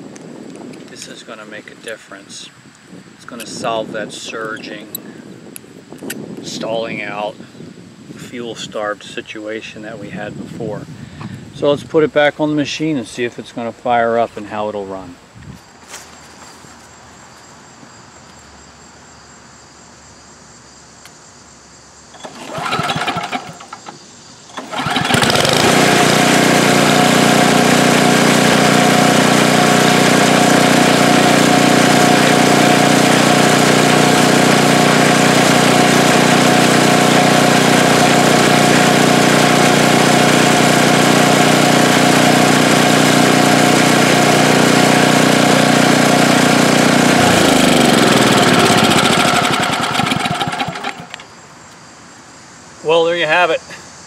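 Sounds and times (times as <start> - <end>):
small engine starting and running: 22.1 - 51.3.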